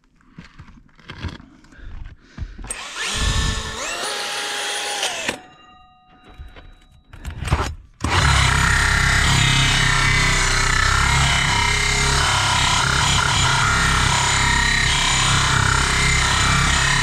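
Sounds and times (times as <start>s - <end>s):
power drill whining: 2.7s - 5.5s, 8.0s - 17.0s.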